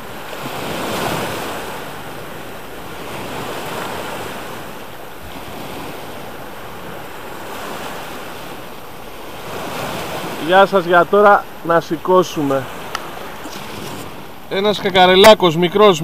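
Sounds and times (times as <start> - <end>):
wind buffeting microphone: 0.0 - 15.4
sea waves washing on shore: 0.0 - 16.0.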